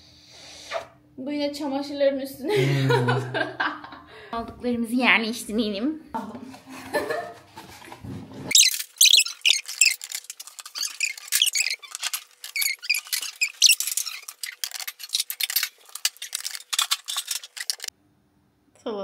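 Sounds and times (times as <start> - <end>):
rapid clicks and clatter: 8.5 - 17.9.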